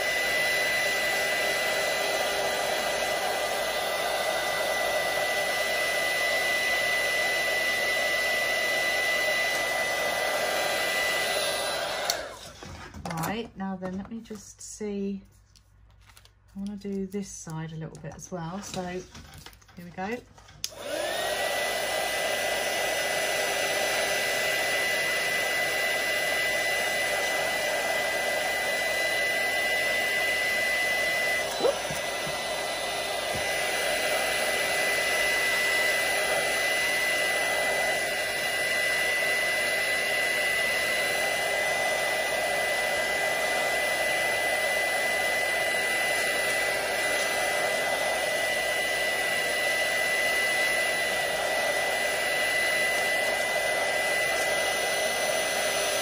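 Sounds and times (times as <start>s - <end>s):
heat gun fan whine and hiss: 20.6s - 56.0s.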